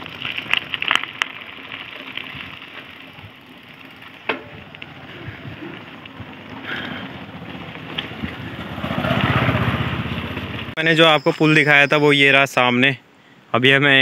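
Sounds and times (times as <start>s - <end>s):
bicycle tyre noise: 0.0s - 10.8s.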